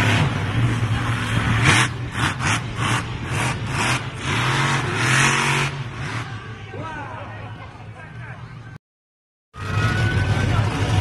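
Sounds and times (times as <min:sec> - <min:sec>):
monster truck engine revving: 0:00.0 - 0:06.6, 0:09.6 - 0:11.0.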